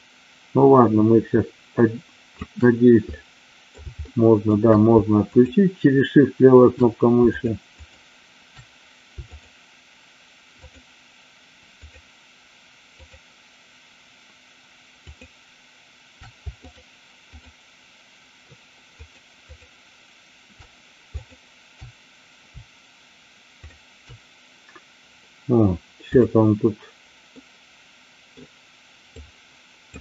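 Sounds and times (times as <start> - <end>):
microphone hiss: 0.0 - 30.0
computer mouse clicks: 3.7 - 4.2, 7.8 - 9.6, 10.6 - 10.9, 11.8 - 12.1, 13.0 - 13.3, 15.0 - 15.3, 16.2 - 17.6, 19.0 - 19.8, 20.5 - 22.7, 29.1 - 30.0.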